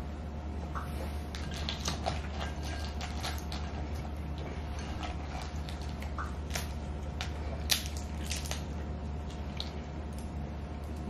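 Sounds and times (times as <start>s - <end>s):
shells cracking and squishing: 5.2s - 8.7s.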